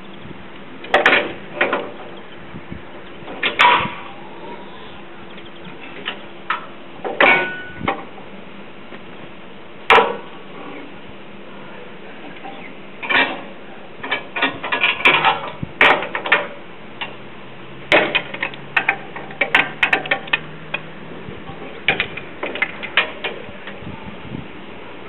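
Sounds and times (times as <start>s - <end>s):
faint steady hum: 0.0s - 25.0s
metal clanks and knocks: 0.8s - 2.2s, 3.2s - 4.0s, 5.9s - 8.1s, 13.0s - 17.2s, 17.9s - 23.8s.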